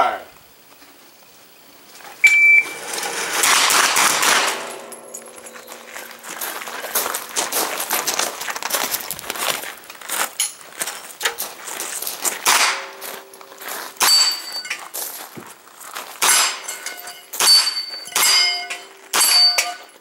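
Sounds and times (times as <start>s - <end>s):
steel targets ringing: 2.2s - 8.6s, 12.4s - 15.0s, 16.2s - 20.0s
gunshots: 3.1s - 4.9s, 12.4s - 13.1s, 16.2s - 16.7s.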